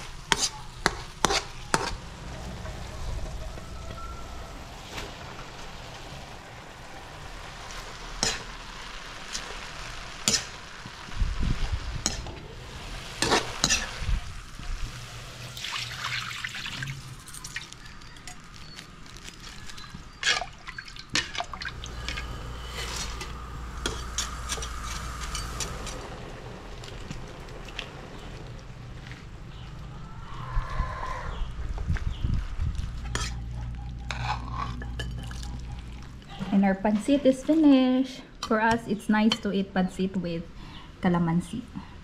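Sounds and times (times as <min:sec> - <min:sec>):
metal spatula scraping wok: 0:00.0 - 0:05.1, 0:10.2 - 0:10.6, 0:12.0 - 0:15.6, 0:21.1 - 0:26.8, 0:33.0 - 0:33.4, 0:34.0 - 0:37.4
light sizzle: 0:00.0 - 0:30.1, 0:31.7 - 0:42.0.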